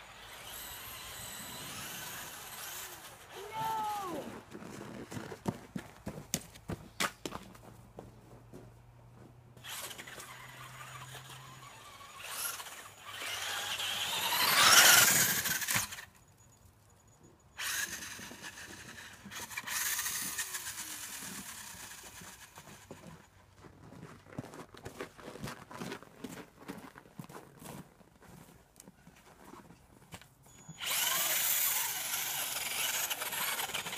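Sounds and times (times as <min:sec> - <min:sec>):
toy car motor whining: 0:00.0 - 0:04.3, 0:09.6 - 0:16.2, 0:17.6 - 0:23.2, 0:30.5 - 0:33.9.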